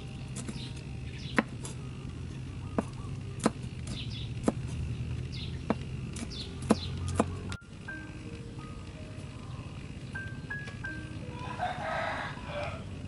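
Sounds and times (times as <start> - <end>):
birds chirping: 0.0 - 13.0
cleaver chopping on wood: 1.3 - 1.8, 2.8 - 4.8, 5.6 - 7.4.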